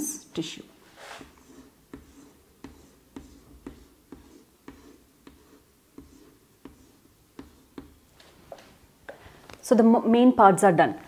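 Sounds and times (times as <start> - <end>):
chalk tapping on blackboard: 1.0 - 8.6.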